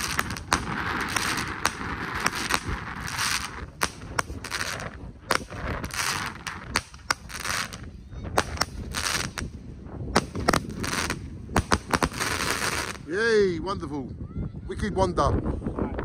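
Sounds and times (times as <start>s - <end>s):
firework hiss: 0.0s - 9.6s, 10.2s - 13.1s
firework bangs: 0.0s - 13.1s.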